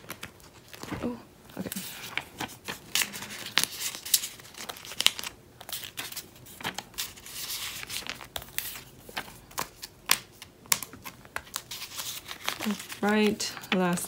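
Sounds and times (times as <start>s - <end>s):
paper rustling: 0.0s - 14.0s
plastic crinkling: 0.0s - 14.0s.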